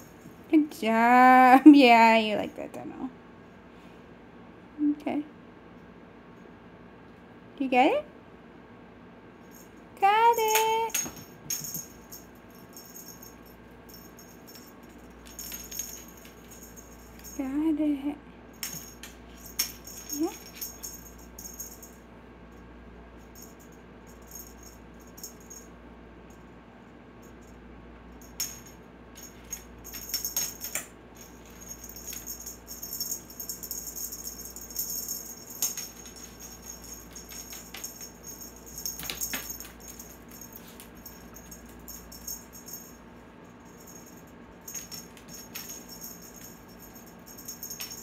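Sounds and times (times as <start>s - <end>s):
small bell jingling: 9.4s - 17.8s, 18.5s - 22.6s, 23.2s - 25.7s, 27.2s - 48.0s.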